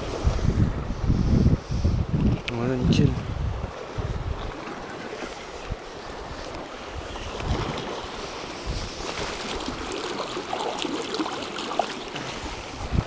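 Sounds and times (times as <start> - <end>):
wind buffeting microphone: 0.0 - 10.8, 12.2 - 13.0
sea water lapping against rocks: 3.5 - 13.0.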